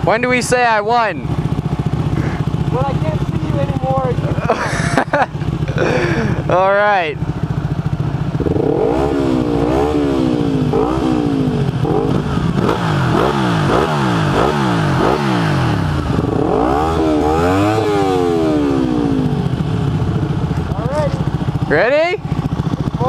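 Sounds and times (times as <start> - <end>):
motorcycle engines revving: 0.0 - 23.0.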